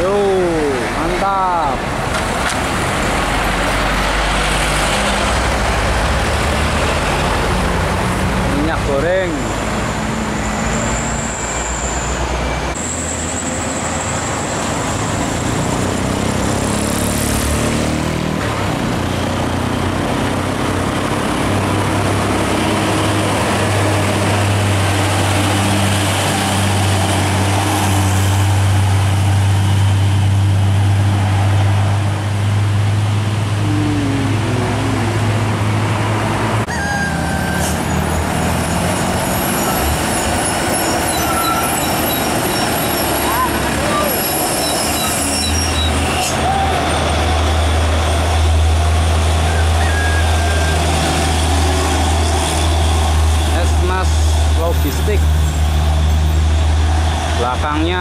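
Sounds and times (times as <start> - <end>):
diesel trucks driving past: 0.0 - 58.0
truck engine low drone: 11.7 - 36.7, 46.7 - 58.0.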